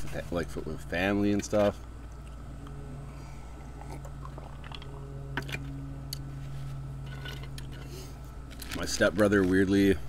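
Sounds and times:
steady low hum: 0:00.0 - 0:10.0
man swallowing a drink: 0:03.6 - 0:04.9.

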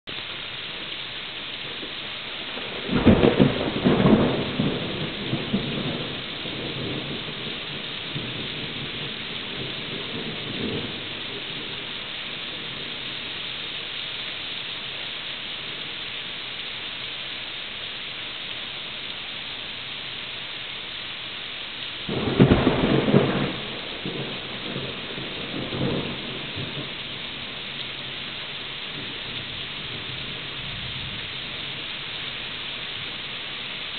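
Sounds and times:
steady rain: 0:00.0 - 0:33.9
thunder rumbling: 0:02.5 - 0:13.2, 0:22.1 - 0:31.9.

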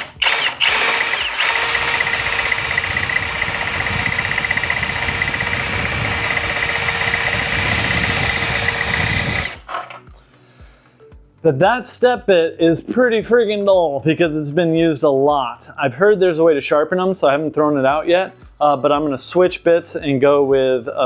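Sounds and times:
drill whining: 0:00.0 - 0:10.2.

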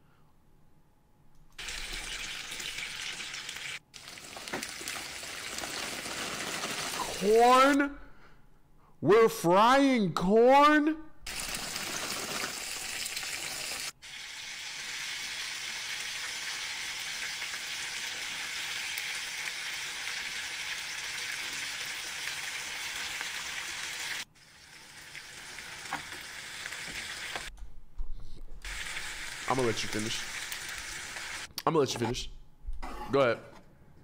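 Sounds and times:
food sizzling in oil: 0:01.6 - 0:07.2, 0:11.3 - 0:27.5, 0:28.6 - 0:31.5.

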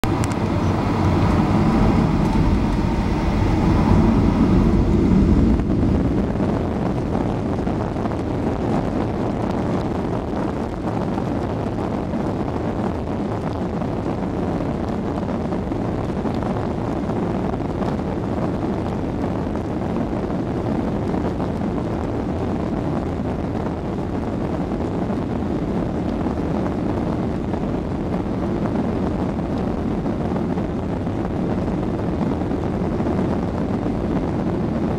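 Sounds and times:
jet engines rumbling: 0:00.0 - 0:19.7
jet engine whine: 0:00.0 - 0:34.9.

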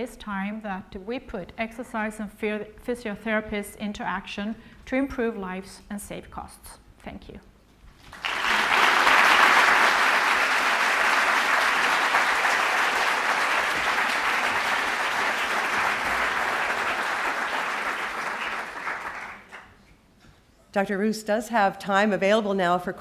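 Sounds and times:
audience applauding: 0:08.0 - 0:19.8.

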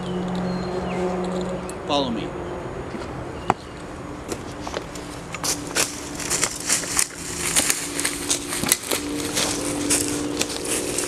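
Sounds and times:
footsteps crunching on dry leaves: 0:04.3 - 0:11.0.

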